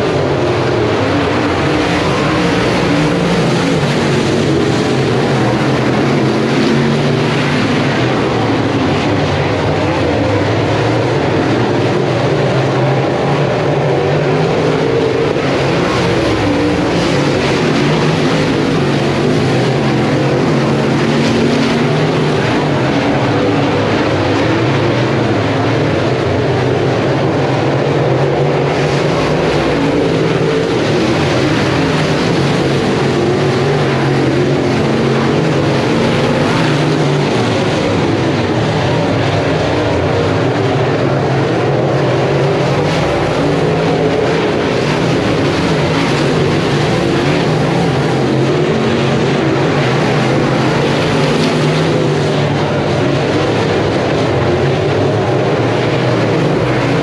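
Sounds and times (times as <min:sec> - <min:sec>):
race car engines running: 0:00.0 - 0:57.0.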